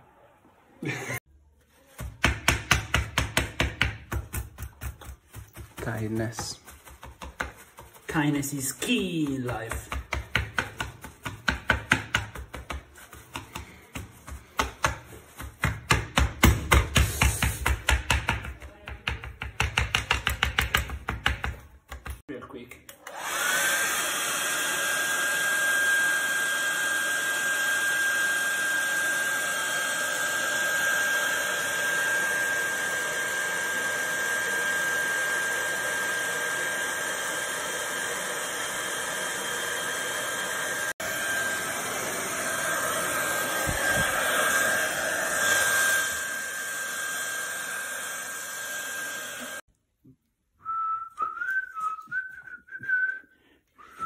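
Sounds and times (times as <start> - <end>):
hair dryer blowing with whine: 23.0 - 49.7
person whistling: 50.6 - 54.0.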